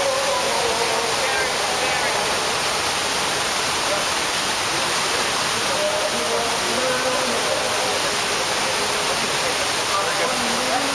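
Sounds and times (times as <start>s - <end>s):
fountain water splashing into pool: 0.0s - 10.9s.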